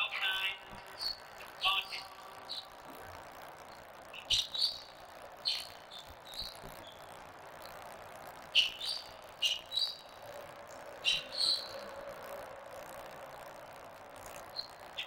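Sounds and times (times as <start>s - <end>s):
background murmur: 10.0s - 15.0s.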